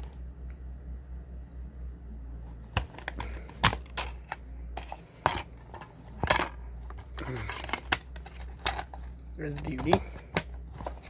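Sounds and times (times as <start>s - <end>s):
low hum: 0.0s - 11.0s
plastic case clicking and clattering: 2.7s - 11.0s.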